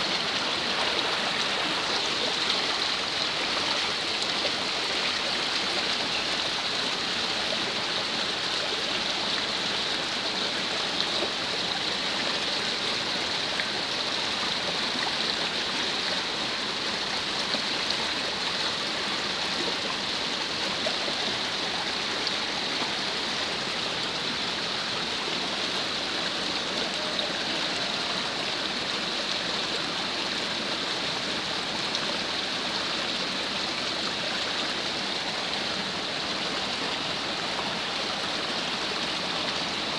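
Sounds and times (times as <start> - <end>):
runoff water rushing: 0.0 - 39.9
heavy rain falling: 16.2 - 39.9.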